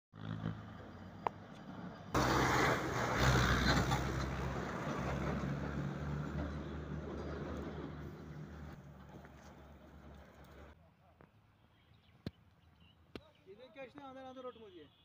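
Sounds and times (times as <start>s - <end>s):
vehicle engine droning: 0.2s - 10.8s.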